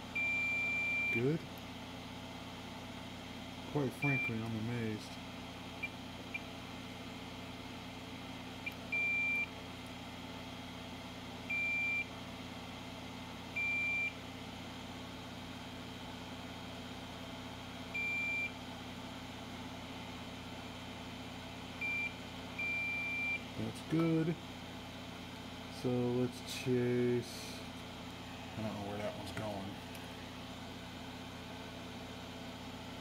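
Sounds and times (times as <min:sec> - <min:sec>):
steady low hum: 0:00.0 - 0:33.0
multimeter continuity beeps: 0:00.2 - 0:01.3, 0:03.9 - 0:04.5, 0:08.6 - 0:09.5, 0:11.5 - 0:12.1, 0:13.6 - 0:14.2, 0:18.0 - 0:18.6, 0:21.8 - 0:23.5.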